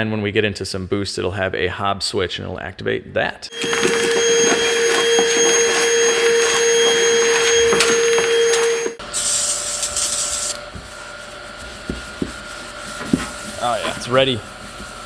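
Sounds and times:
shop vacuum whining: 3.5 - 9.2
paper towel rubbing: 10.8 - 15.0.

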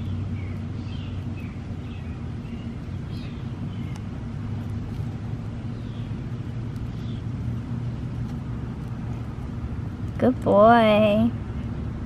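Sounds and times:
low background hum: 0.0 - 12.0
tortoise chewing soft clicks: 3.5 - 10.2.

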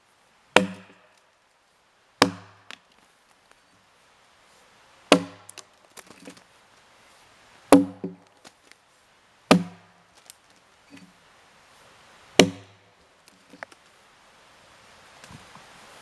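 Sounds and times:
axe chopping into log: 0.6 - 1.0, 2.2 - 2.8, 5.1 - 6.4, 7.7 - 8.3, 9.5 - 9.9, 12.4 - 12.8.

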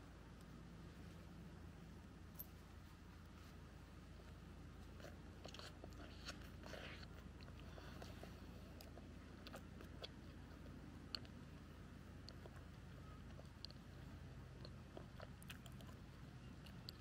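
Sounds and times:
sandwich being chewed: 4.1 - 17.0.

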